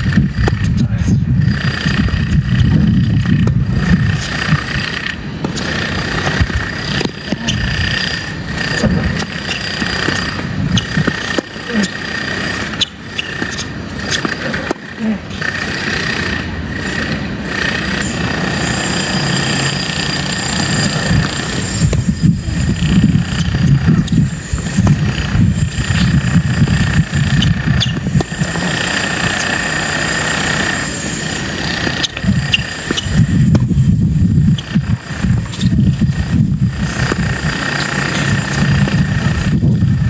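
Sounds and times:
strong wind buffeting microphone: 0.0s - 40.0s
faint steady high tones: 5.8s - 34.6s.

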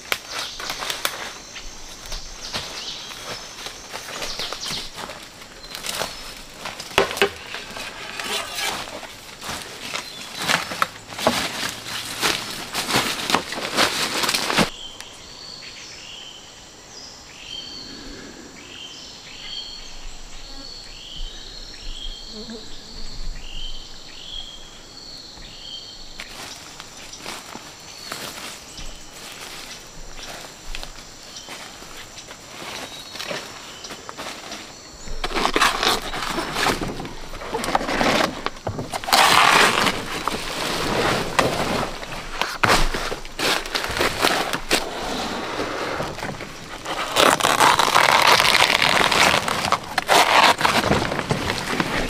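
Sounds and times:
footsteps in dry leaves: 0.0s - 14.8s, 26.2s - 52.0s.

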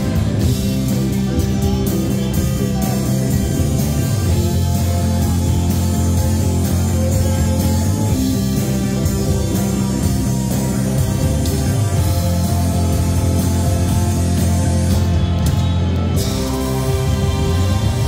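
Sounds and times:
drums: 0.0s - 18.0s
electric guitar: 0.0s - 18.0s.

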